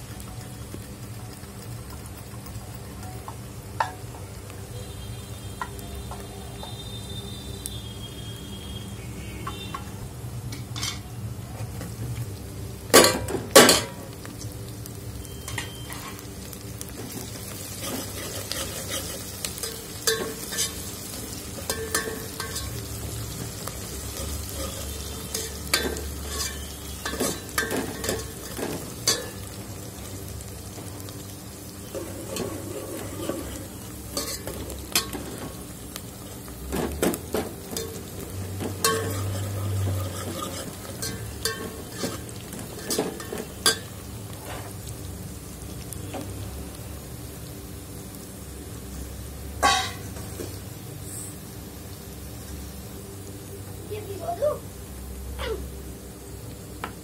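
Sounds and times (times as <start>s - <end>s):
onions and chillies sizzling in oil: 0.0s - 57.0s
metal ladle clinking and scraping pot: 24.5s - 29.4s, 31.9s - 35.2s, 38.8s - 43.9s.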